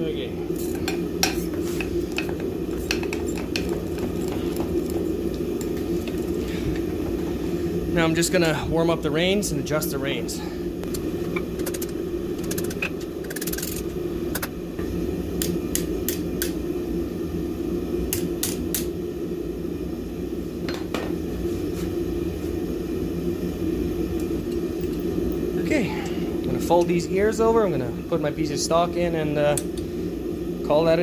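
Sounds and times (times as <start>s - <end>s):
forge drone: 0.0s - 20.6s.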